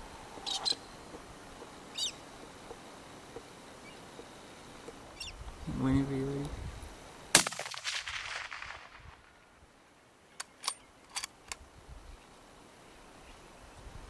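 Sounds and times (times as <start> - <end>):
rifle shot with echo: 7.3 - 9.4.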